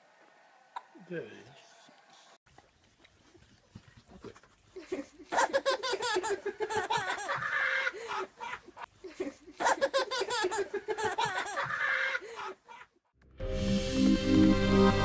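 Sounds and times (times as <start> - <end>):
baby laughing: 5.3 - 12.9.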